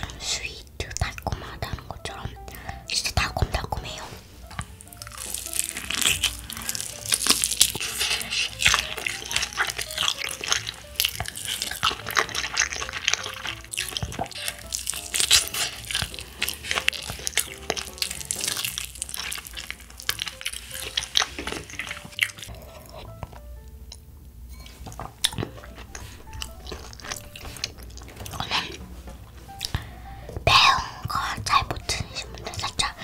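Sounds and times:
soft background music: 0.0s - 33.0s
crunchy chewing: 4.4s - 23.4s, 24.7s - 28.9s.

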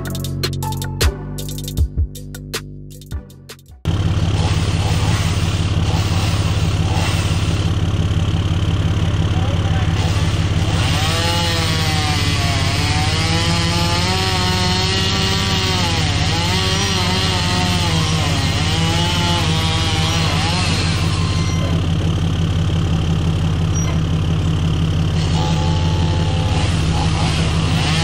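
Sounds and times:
low engine drone: 3.8s - 14.2s, 17.3s - 28.0s
chainsaw cutting wood: 3.9s - 8.0s, 9.7s - 22.2s, 25.1s - 28.0s.

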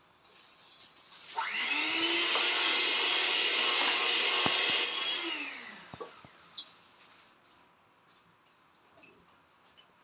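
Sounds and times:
electric mixer motor whine: 1.3s - 6.4s.

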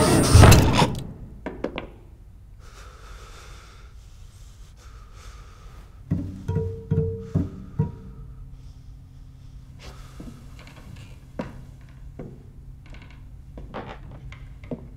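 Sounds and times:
low plucked strings: 6.1s - 8.2s
held low string note: 6.1s - 8.6s.

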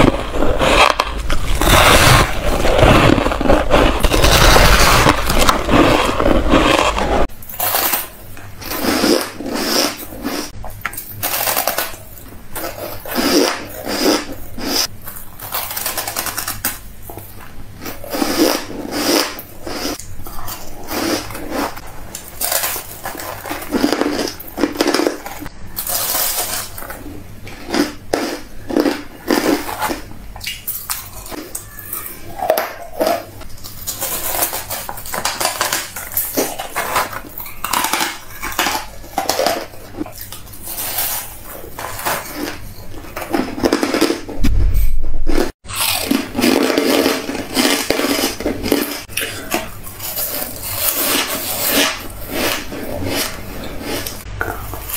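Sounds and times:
chewing crunchy ice: 0.0s - 8.0s, 17.8s - 30.0s, 30.7s - 44.3s, 45.7s - 54.9s.

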